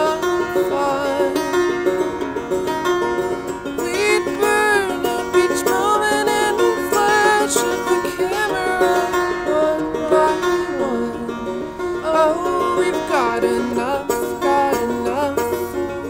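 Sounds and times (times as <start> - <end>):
live band with plucked strings: 0.0 - 16.0.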